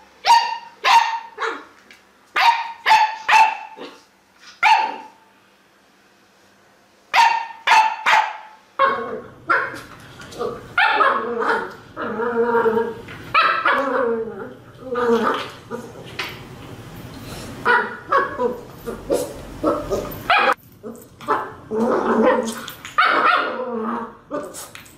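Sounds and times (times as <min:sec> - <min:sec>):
low background hum: 0:00.0 - 0:24.9
dog barking: 0:00.2 - 0:01.7, 0:02.4 - 0:04.0, 0:04.6 - 0:05.2, 0:07.1 - 0:09.8, 0:10.8 - 0:11.7, 0:13.3 - 0:13.8, 0:17.6 - 0:20.6, 0:22.2 - 0:23.6
puppy barking: 0:00.2 - 0:01.7, 0:02.4 - 0:04.0, 0:04.6 - 0:05.2, 0:07.1 - 0:09.8, 0:10.8 - 0:11.7, 0:13.3 - 0:13.9, 0:17.6 - 0:20.6, 0:21.2 - 0:23.6.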